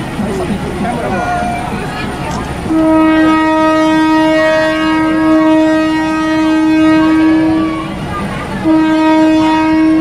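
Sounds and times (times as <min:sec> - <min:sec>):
train horn long blast: 0:02.6 - 0:08.0, 0:08.6 - 0:10.0.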